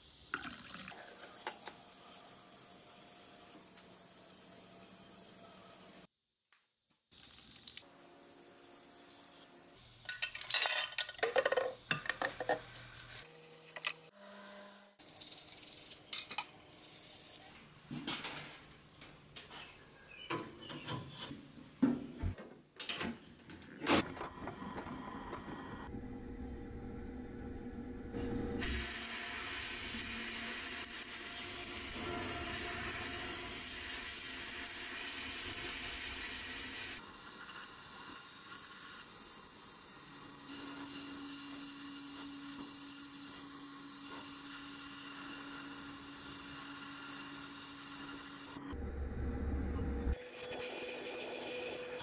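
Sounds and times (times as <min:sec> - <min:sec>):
parts clattering in cabinet: 0:10.0 - 0:12.6.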